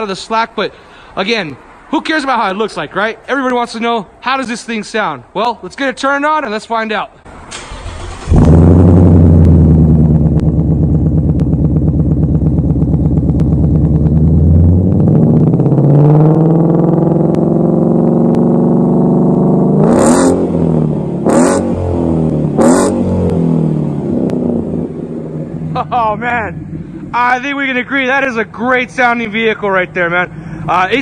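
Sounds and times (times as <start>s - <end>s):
car exhaust idling and revving: 8.2s - 31.0s.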